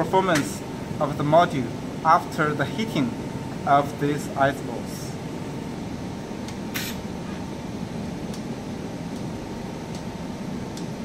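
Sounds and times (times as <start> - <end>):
air conditioner humming: 0.0 - 11.0
brief hiss: 6.7 - 7.0.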